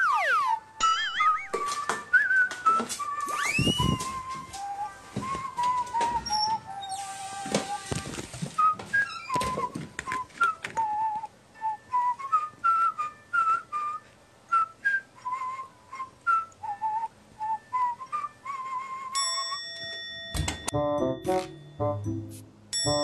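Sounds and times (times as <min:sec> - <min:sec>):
whistled tune: 0:00.0 - 0:07.9, 0:08.6 - 0:19.9, 0:20.7 - 0:23.0
held chord: 0:20.7 - 0:23.0.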